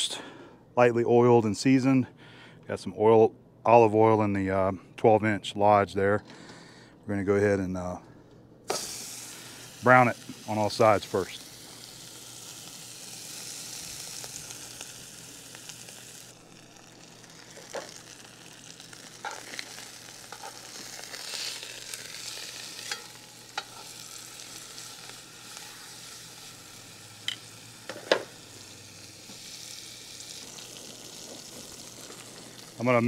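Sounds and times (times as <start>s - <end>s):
meat sizzling in hot oil: 8.7s - 33.0s.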